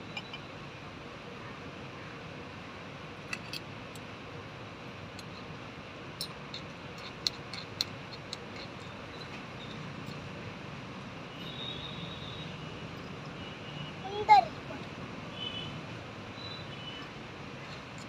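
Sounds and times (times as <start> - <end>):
metal spoon clinking in small pot: 0.1 - 0.5, 3.3 - 3.6, 6.2 - 10.2.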